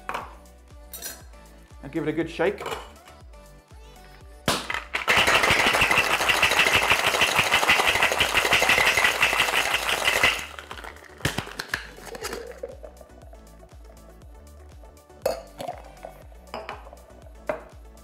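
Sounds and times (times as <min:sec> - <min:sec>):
ice rattling in metal shaker: 0:04.9 - 0:13.1.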